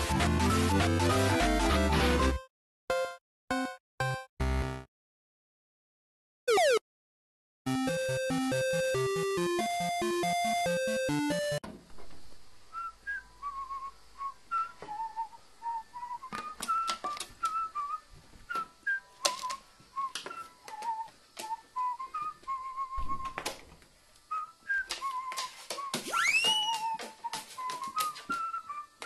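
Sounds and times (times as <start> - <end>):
short whistled notes: 24.3 - 29.0.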